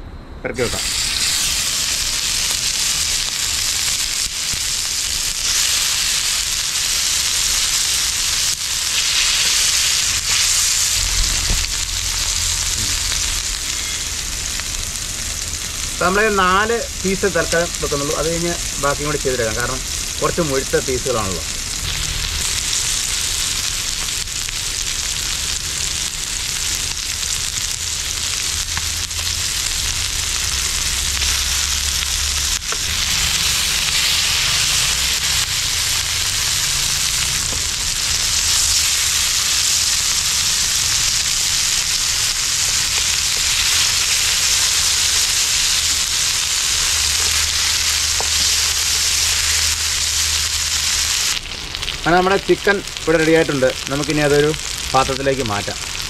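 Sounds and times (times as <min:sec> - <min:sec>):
chicken sizzling in oil: 0:00.6 - 0:56.0.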